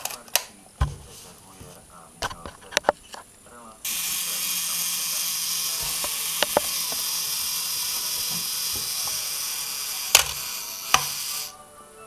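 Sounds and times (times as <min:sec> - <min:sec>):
small motor whirring: 0:03.8 - 0:11.6
sharp clicks: 0:05.7 - 0:09.4, 0:10.0 - 0:11.3.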